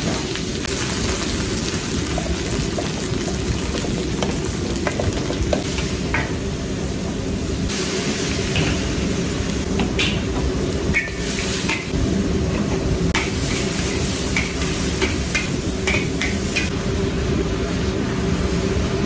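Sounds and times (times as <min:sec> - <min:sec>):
food sizzling in hot oil: 0:00.0 - 0:19.0
metal ladle scraping a wok: 0:10.9 - 0:11.9.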